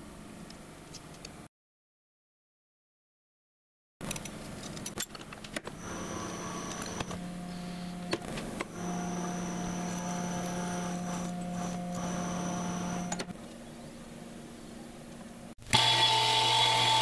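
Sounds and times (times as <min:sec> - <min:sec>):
metal lathe humming: 0:05.8 - 0:13.3, 0:15.7 - 0:17.0.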